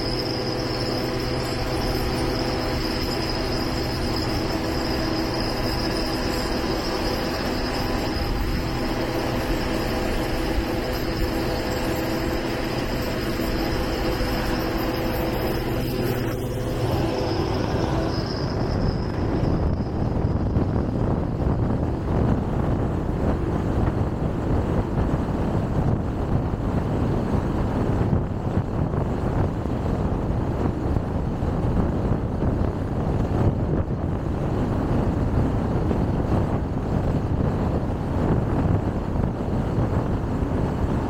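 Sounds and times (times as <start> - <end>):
car road and engine noise: 0.0 - 41.0
humming drone: 0.0 - 41.0.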